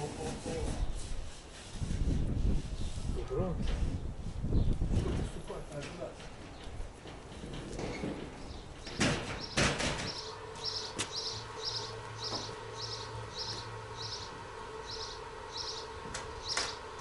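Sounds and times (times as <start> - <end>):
sharp knocks: 7.4 - 10.2
small bird chirping: 9.4 - 16.8.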